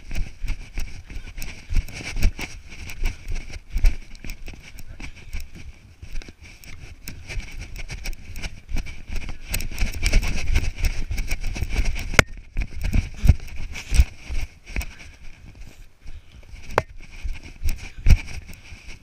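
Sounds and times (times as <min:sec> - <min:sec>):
clothing rustle: 0:00.0 - 0:19.0.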